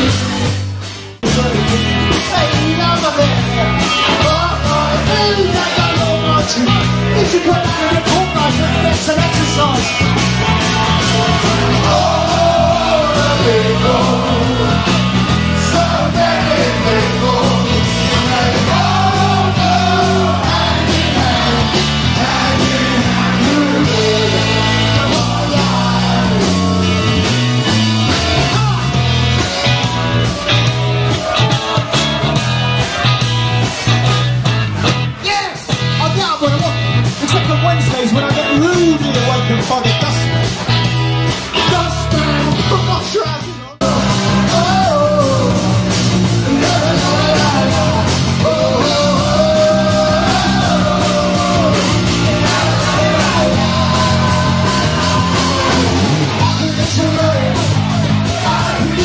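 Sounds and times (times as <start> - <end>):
live rock band playing loudly: 0.0 - 59.0
person singing: 43.6 - 59.0.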